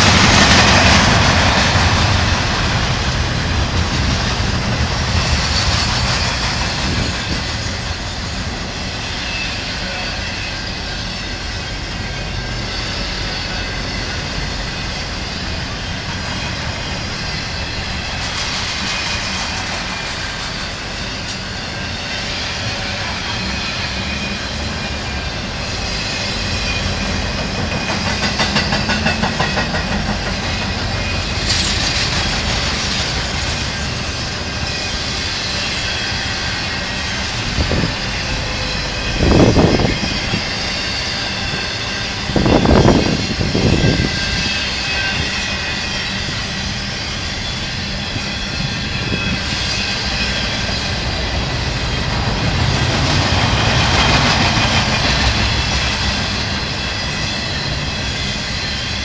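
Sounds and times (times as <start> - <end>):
freight train rumbling and rattling: 0.0 - 59.0.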